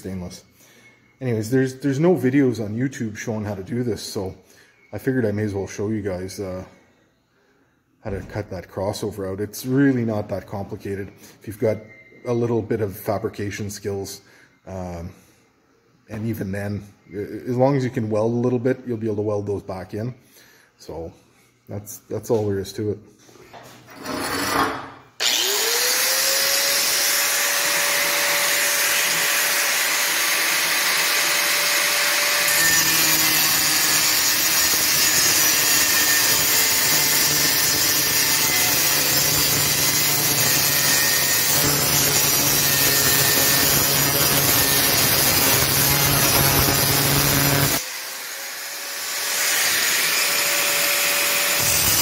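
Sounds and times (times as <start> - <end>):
grinder cutting metal pipe: 24.0 - 52.0
angle grinder whining: 24.2 - 52.0.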